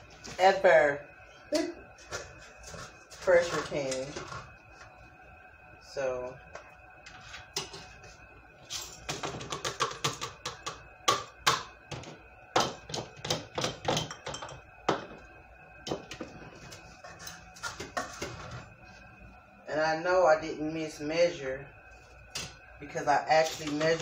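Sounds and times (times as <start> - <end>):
glass jars clinking: 13.7 - 14.6.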